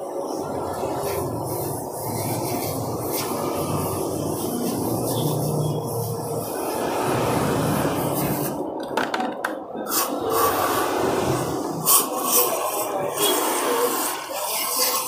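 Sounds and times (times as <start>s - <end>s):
aerosol spray hissing on metal: 0.3s - 8.5s.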